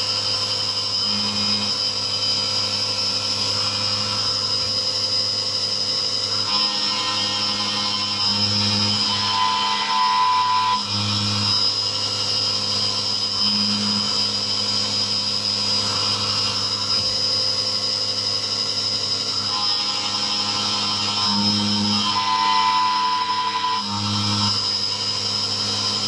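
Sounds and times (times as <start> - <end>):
milling cutter cutting metal: 0.0 - 26.0
milling spindle whine: 0.0 - 26.0.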